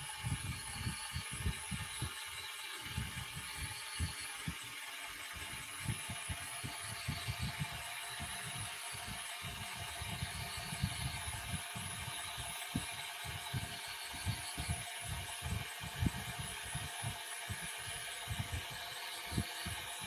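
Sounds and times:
faint high whine: 0.0s - 20.0s.

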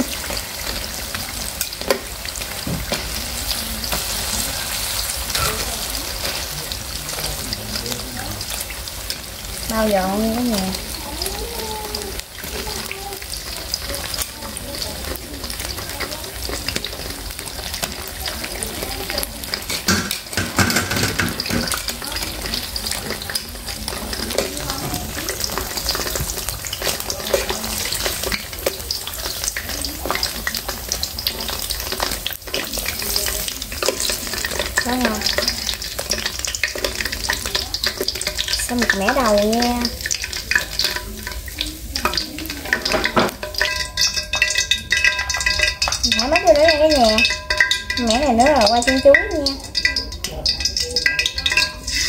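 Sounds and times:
batter deep-frying in oil: 0.0s - 52.0s
strainer scraping a wok: 51.0s - 52.0s.

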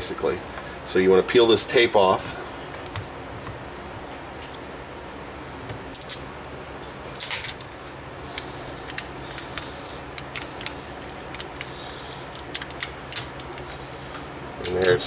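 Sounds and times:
tape peeling crackles: 7.2s - 15.0s.

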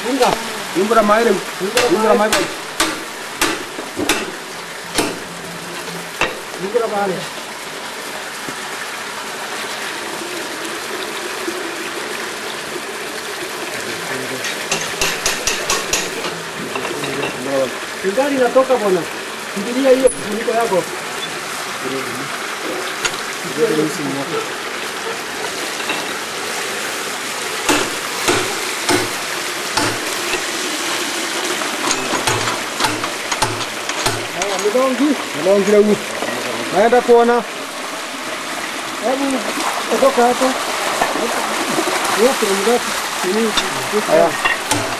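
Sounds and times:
water gushing from a pipe: 0.0s - 44.9s
metal tool clicking and splashing: 1.8s - 4.4s, 5.0s - 6.4s, 14.4s - 17.2s, 27.7s - 30.5s, 31.8s - 34.8s, 43.5s - 44.9s
water splashing on wet beans: 39.0s - 44.9s.

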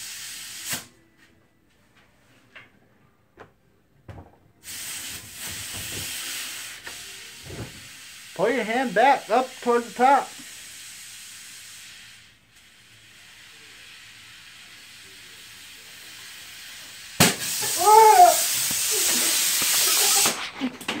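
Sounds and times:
compressed air hissing: 0.0s - 0.9s, 4.6s - 20.7s
rush of escaping air: 9.2s - 20.7s.

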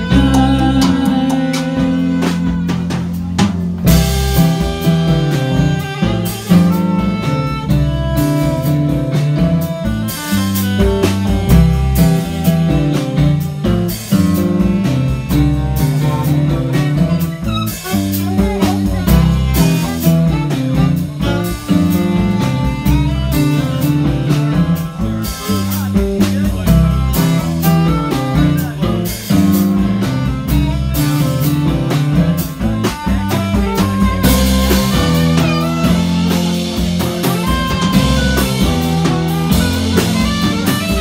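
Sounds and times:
live band playing: 0.0s - 41.0s.

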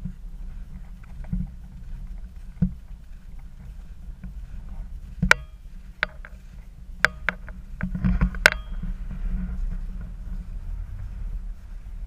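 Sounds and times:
low wind rumble on microphone: 0.0s - 12.0s
sharp metallic clinks: 8.5s - 8.8s.

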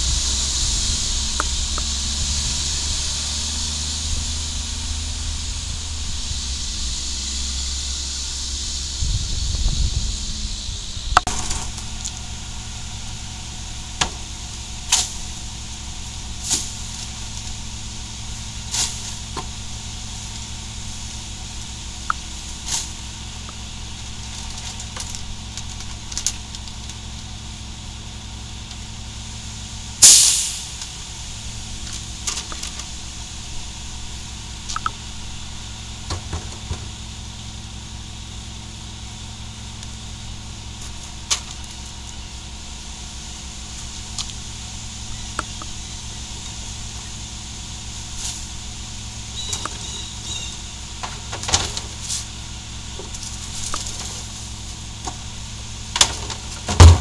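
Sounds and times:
garbage truck idling: 0.0s - 57.0s
air hiss burst: 30.0s - 31.3s
trash knocks and bumps: 36.0s - 37.0s, 51.0s - 52.2s, 55.9s - 57.0s.

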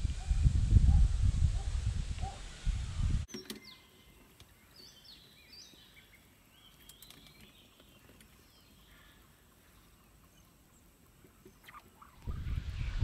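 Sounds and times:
wind buffeting microphone: 0.0s - 3.3s, 12.2s - 13.0s
small birds chirping: 2.2s - 13.0s.

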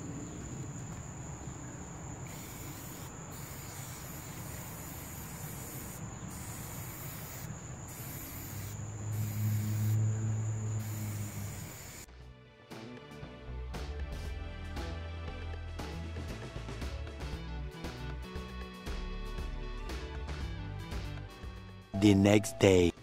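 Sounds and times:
aerosol can spraying: 2.3s - 10.1s, 10.8s - 12.1s.

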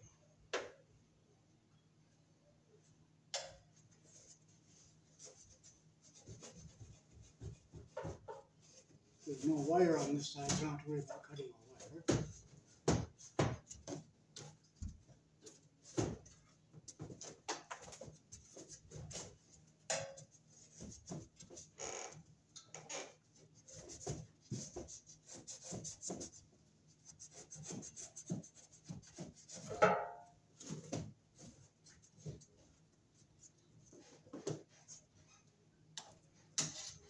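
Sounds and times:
blade scraping ceiling tile: 36.6s - 37.0s.

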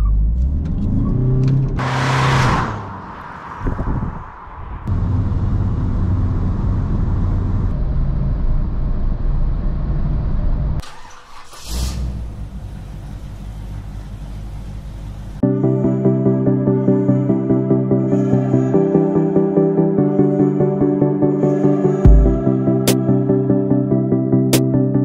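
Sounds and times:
brief rushing noise: 1.8s - 5.3s
diesel engine running: 4.9s - 15.4s
music: 15.4s - 25.0s.

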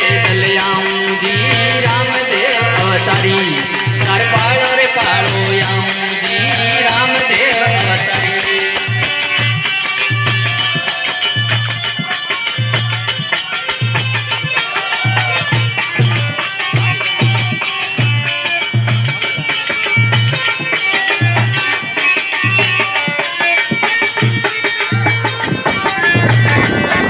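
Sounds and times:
drum beating low rhythm: 24.2s - 27.0s.

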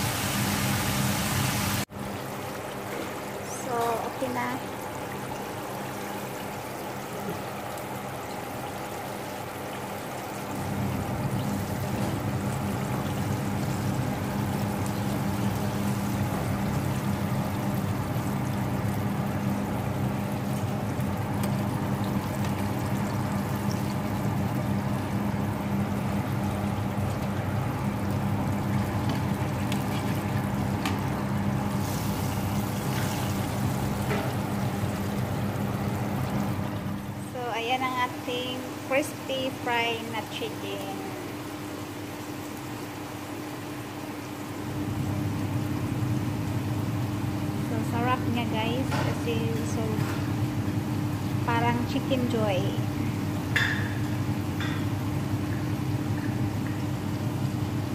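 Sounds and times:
oil bubbling and sizzling: 0.0s - 57.9s.

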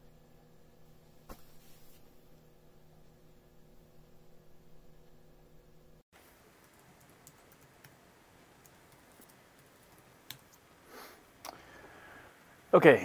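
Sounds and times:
keyboard typing: 6.6s - 8.0s, 8.6s - 10.6s.

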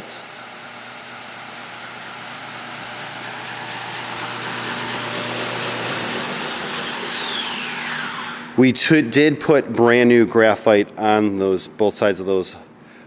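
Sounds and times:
edge sander humming: 0.0s - 8.8s
motor spinning down whine: 0.0s - 8.8s.

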